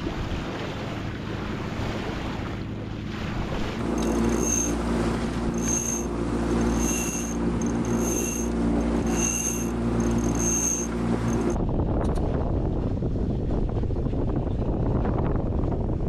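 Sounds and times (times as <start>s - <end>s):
mechanical engine drone: 3.8s - 11.6s
high-pitched squeak: 3.9s - 4.8s, 5.5s - 11.6s.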